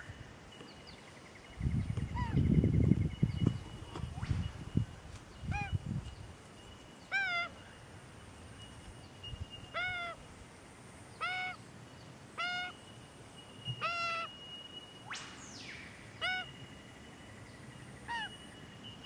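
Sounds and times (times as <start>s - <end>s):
young magpie squawking: 12.4s - 12.7s.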